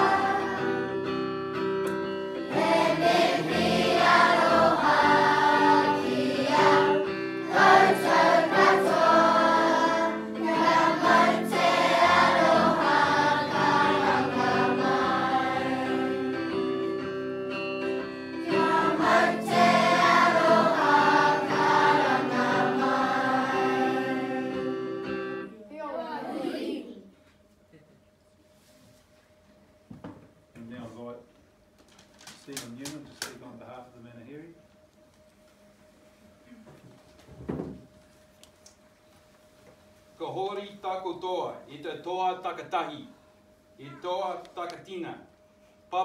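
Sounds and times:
group singing in unison: 0:00.0 - 0:01.0, 0:02.5 - 0:16.7, 0:18.4 - 0:25.2
acoustic guitar: 0:00.0 - 0:25.6.

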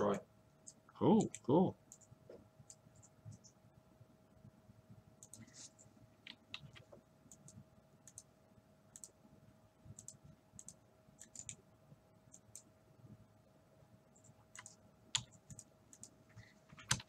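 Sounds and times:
faint steady hum: 0:00.0 - 0:17.0
keyboard keystrokes: 0:16.8 - 0:17.0.

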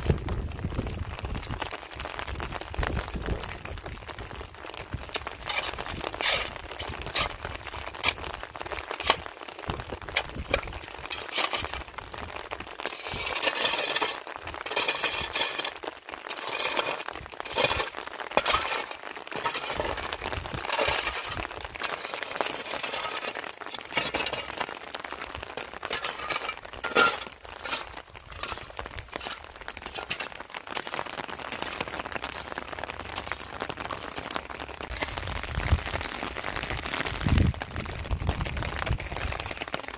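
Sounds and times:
hard objects clinking: 0:25.6 - 0:30.9.

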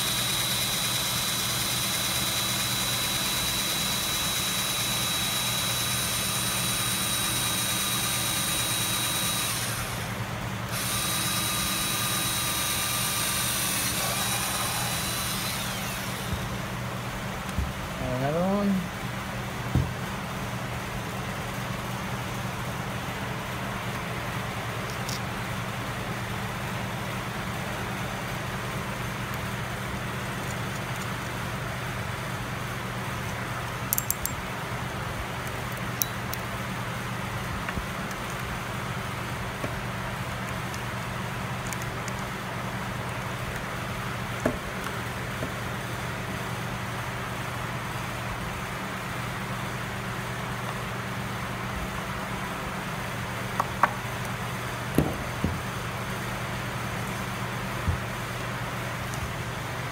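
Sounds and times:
low machine hum: 0:00.0 - 0:30.3
metal hardware clicks and taps: 0:33.9 - 0:34.4.

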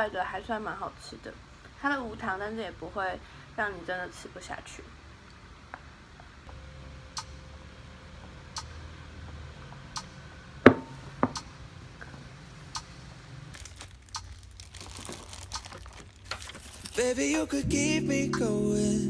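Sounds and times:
soft crinkling and clicking: 0:13.5 - 0:17.5.

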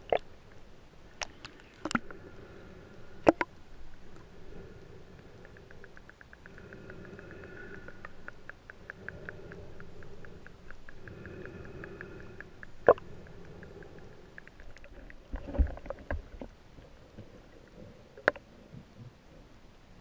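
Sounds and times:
muffled underwater wash: 0:00.0 - 0:20.0
faint evenly spaced clicks: 0:02.9 - 0:15.3.

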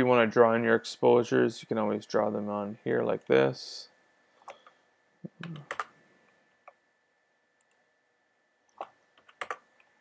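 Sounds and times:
computer mouse clicks: 0:04.4 - 0:04.8, 0:07.6 - 0:07.8, 0:08.7 - 0:10.0.

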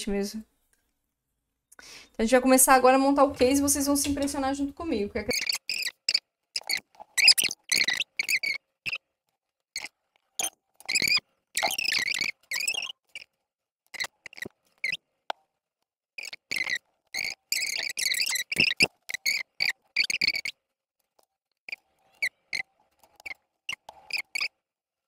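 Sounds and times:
wooden panels scraping and squeaking: 0:02.9 - 0:09.1, 0:09.8 - 0:15.0, 0:16.2 - 0:20.6, 0:21.7 - 0:24.6.

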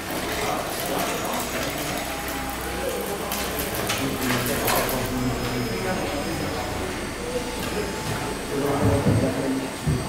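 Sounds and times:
chatter of voices: 0:00.0 - 0:10.0.

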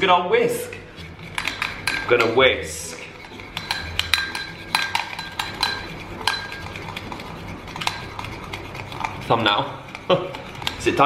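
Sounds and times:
fork clinking against ceramic bowl: 0:01.4 - 0:02.4, 0:03.2 - 0:11.0.

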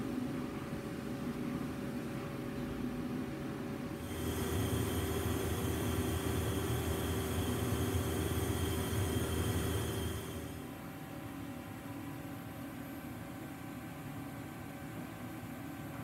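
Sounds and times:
machine shop equipment hum: 0:03.9 - 0:13.7
low drone: 0:04.0 - 0:10.6
thin high whine: 0:04.0 - 0:10.7.

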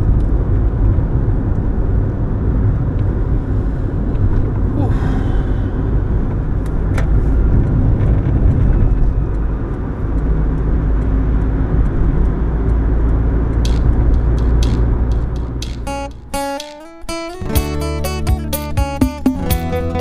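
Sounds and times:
engine and tyre rumble: 0:00.0 - 0:20.0
light ticks: 0:06.6 - 0:17.2.

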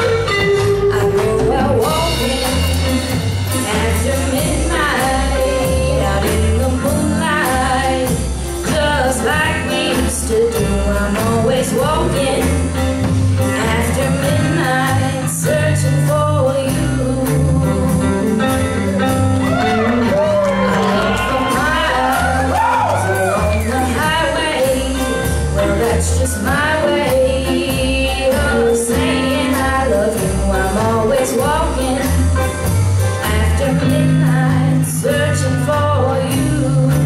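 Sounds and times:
country band playing: 0:00.0 - 0:37.0
woman singing: 0:00.0 - 0:37.0.

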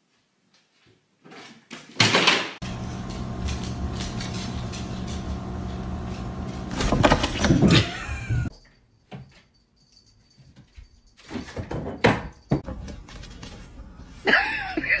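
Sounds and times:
steady low hum: 0:02.6 - 0:08.5.

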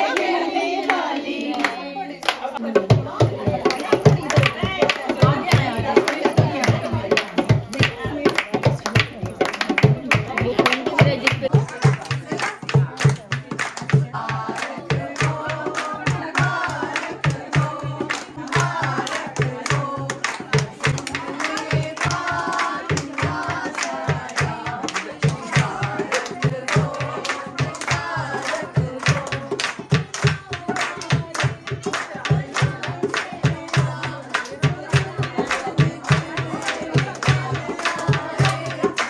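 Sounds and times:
voices singing: 0:00.0 - 0:39.0
hand drum beaten in rhythm: 0:02.6 - 0:39.0.

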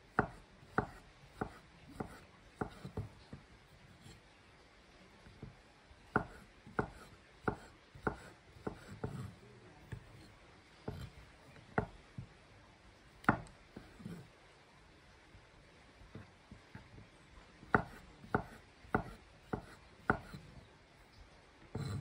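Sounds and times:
knife cutting on wooden board: 0:00.1 - 0:03.2, 0:06.1 - 0:12.0, 0:13.2 - 0:14.3, 0:17.6 - 0:20.5, 0:21.7 - 0:22.0.

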